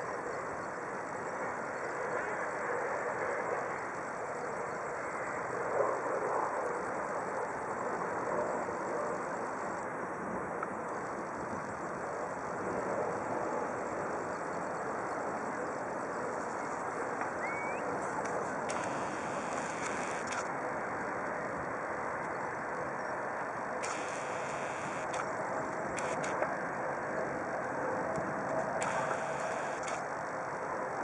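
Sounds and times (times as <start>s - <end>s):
distant engines humming: 15.3s - 20.6s, 23.8s - 30.9s.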